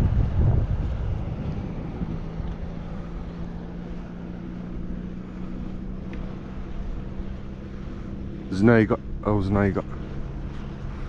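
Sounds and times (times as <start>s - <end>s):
wind on microphone: 0.0s - 7.0s
steady low hum: 0.0s - 11.0s.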